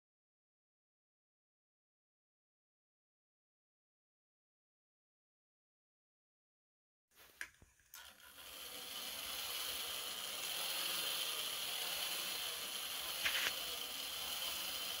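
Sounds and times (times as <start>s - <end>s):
toy motor and gears whirring: 7.3s - 15.0s.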